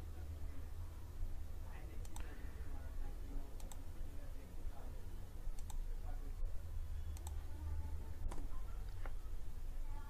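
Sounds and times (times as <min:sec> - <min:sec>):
steady low hum: 0:00.0 - 0:10.0
computer mouse clicks: 0:02.0 - 0:02.3, 0:03.6 - 0:03.9, 0:05.5 - 0:05.8, 0:07.1 - 0:07.4, 0:08.3 - 0:09.2.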